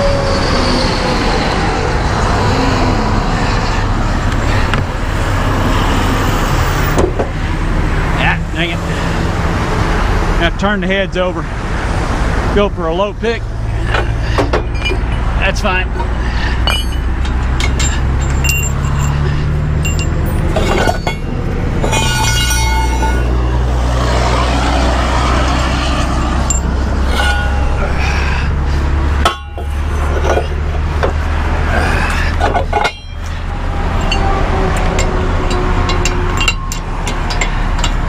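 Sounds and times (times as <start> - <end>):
diesel truck engine idling: 1.1 - 38.0
steel parts clanking on pavement: 13.7 - 24.4, 25.2 - 38.0.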